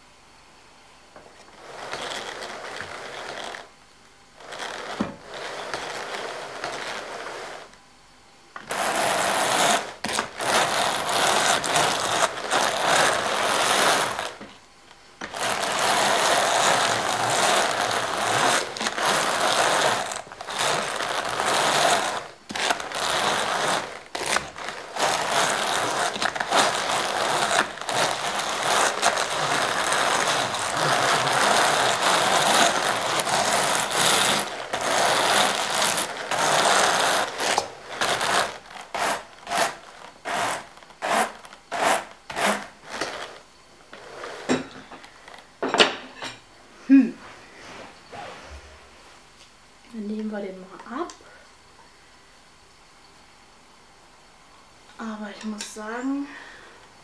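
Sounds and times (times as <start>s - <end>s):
drum carder whirring and rattling: 8.6s - 14.6s, 15.2s - 43.2s.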